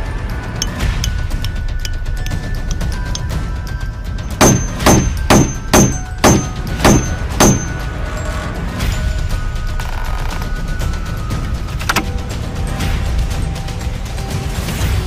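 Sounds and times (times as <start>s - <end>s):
background music: 0.0s - 15.0s
hammer driving nail into wood: 4.3s - 7.8s.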